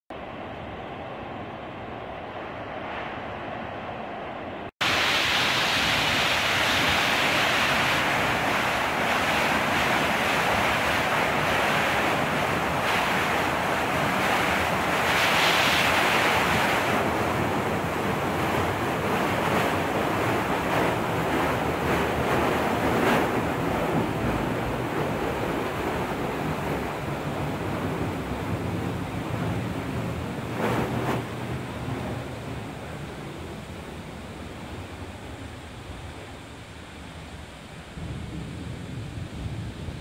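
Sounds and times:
waterfall rushing: 0:04.8 - 0:34.4.

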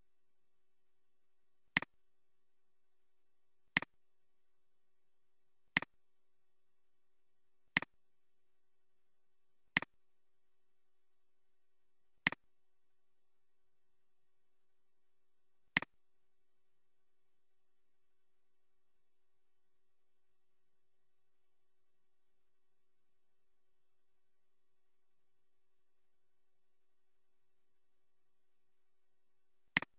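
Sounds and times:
computer mouse clicks: 0:03.7 - 0:03.9, 0:07.7 - 0:07.9, 0:09.7 - 0:09.9, 0:15.7 - 0:15.9.

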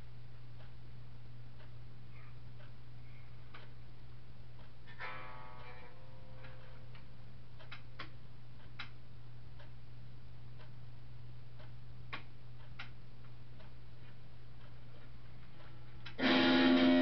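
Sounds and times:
low amp hum: 0:00.0 - 0:17.0
electric guitar chord strummed: 0:16.2 - 0:17.0.

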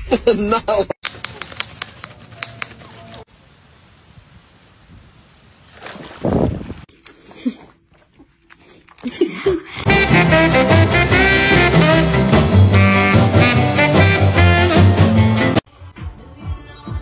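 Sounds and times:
swing music with brass: 0:09.8 - 0:15.6.

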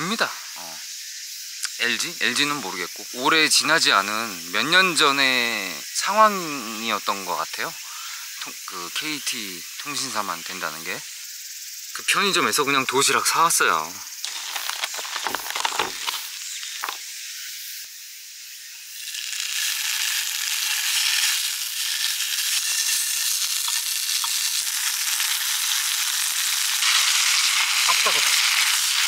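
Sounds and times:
food sizzling in a pan: 0:00.0 - 0:29.0
stove hissing: 0:18.8 - 0:29.0.

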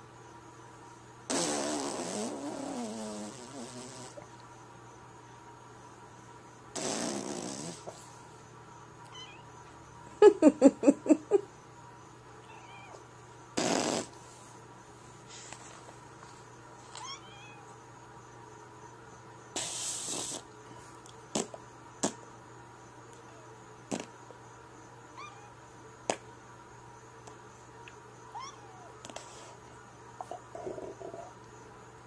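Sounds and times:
cat meowing: 0:09.1 - 0:09.4, 0:12.4 - 0:13.0, 0:17.0 - 0:17.7, 0:25.2 - 0:25.6, 0:28.3 - 0:28.9.

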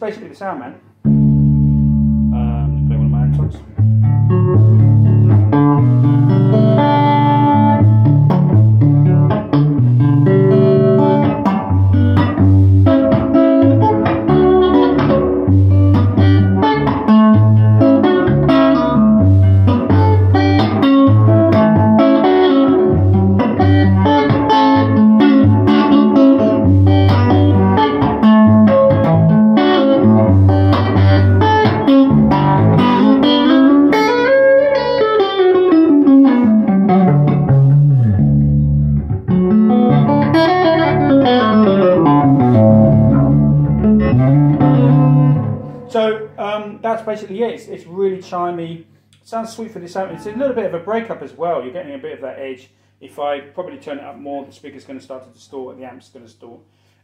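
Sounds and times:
electric guitar: 0:01.0 - 0:46.4.

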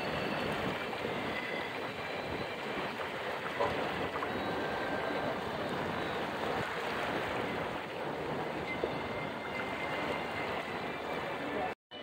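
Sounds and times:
water rushing: 0:00.0 - 0:11.8
wind: 0:00.0 - 0:12.0.

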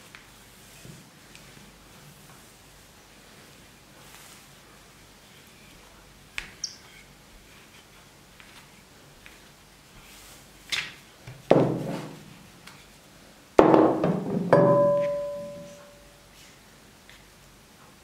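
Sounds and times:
sharply struck ringing notes: 0:14.5 - 0:16.2.

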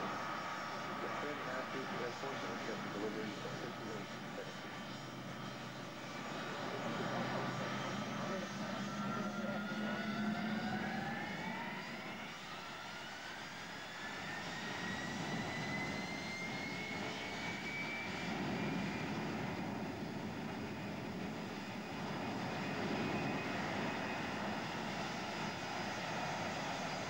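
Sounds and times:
jet engines whining: 0:00.0 - 0:27.0
jet rumble: 0:00.0 - 0:27.0.

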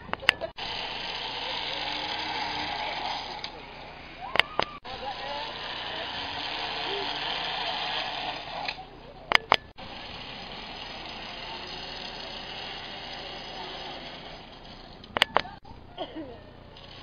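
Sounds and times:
sharp clicks: 0:00.0 - 0:00.6, 0:04.2 - 0:04.8, 0:08.6 - 0:09.8, 0:15.0 - 0:15.7
faint indistinct voices: 0:00.0 - 0:17.0
outdoor background noise: 0:00.0 - 0:17.0.

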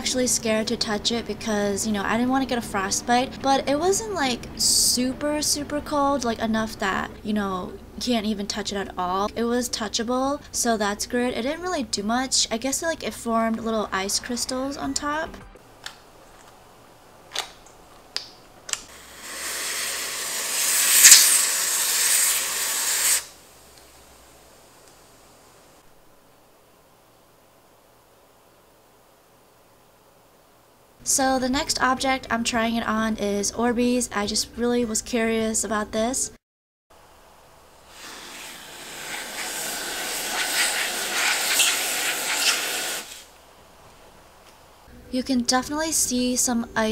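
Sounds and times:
aerosol spray hissing: 0:18.9 - 0:23.4, 0:37.8 - 0:43.3.

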